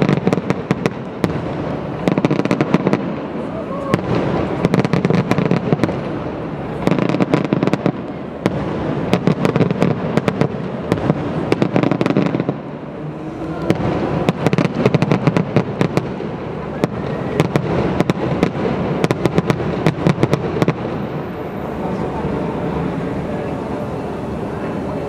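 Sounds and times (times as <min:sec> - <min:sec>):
fireworks bangs: 0:00.0 - 0:25.0.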